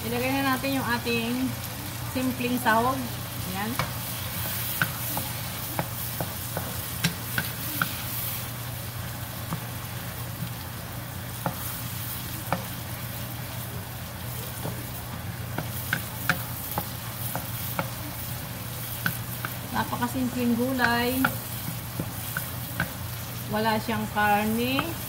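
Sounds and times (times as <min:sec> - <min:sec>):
food sizzling in oil: 0:00.0 - 0:25.0
spatula clicking against pan: 0:03.7 - 0:08.0, 0:15.6 - 0:18.0, 0:18.9 - 0:19.6, 0:20.7 - 0:23.0.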